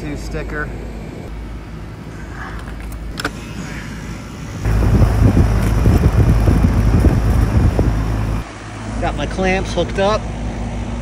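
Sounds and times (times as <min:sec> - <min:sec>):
air conditioner unit humming: 0:00.0 - 0:11.0
quiet rumble: 0:01.1 - 0:09.1.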